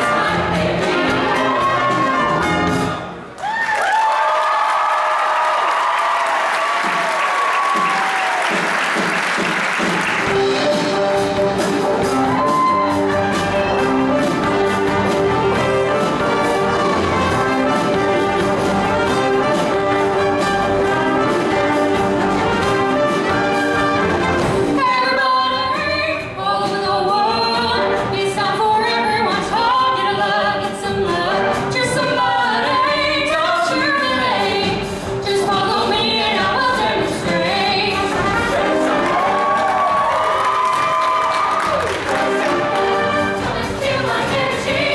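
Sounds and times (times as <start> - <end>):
choir singing: 0.0 - 3.0, 28.9 - 40.1, 42.0 - 44.9
band with brass playing: 0.0 - 3.3, 6.8 - 44.9.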